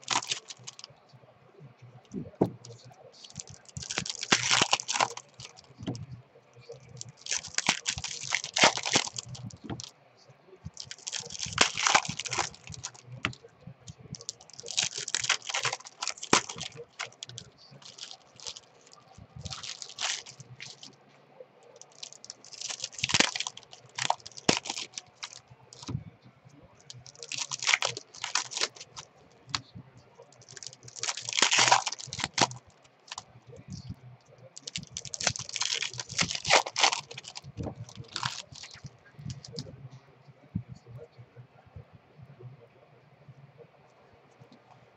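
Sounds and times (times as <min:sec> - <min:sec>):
cards clicking and rustling: 0:00.0 - 0:00.8, 0:02.4 - 0:06.0, 0:06.8 - 0:09.9, 0:10.8 - 0:13.4, 0:14.2 - 0:20.9, 0:21.8 - 0:26.0, 0:26.9 - 0:29.6, 0:30.4 - 0:33.2, 0:34.6 - 0:39.6
foil wrappers crinkling and tearing: 0:00.0 - 0:00.9, 0:03.2 - 0:06.0, 0:06.7 - 0:09.9, 0:10.7 - 0:13.4, 0:14.2 - 0:20.9, 0:21.8 - 0:25.9, 0:26.8 - 0:29.6, 0:30.2 - 0:33.2, 0:34.6 - 0:39.6.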